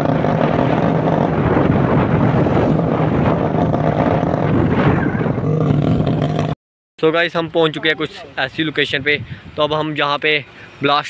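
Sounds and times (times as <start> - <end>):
motorcycle engine running: 0.0 - 6.6
wind noise on microphone: 0.0 - 6.6, 7.8 - 10.2.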